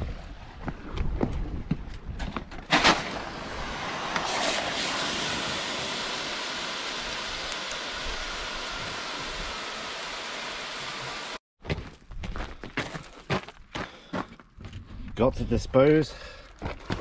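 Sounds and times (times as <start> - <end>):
hot charcoal hissing in water: 2.8 - 11.4.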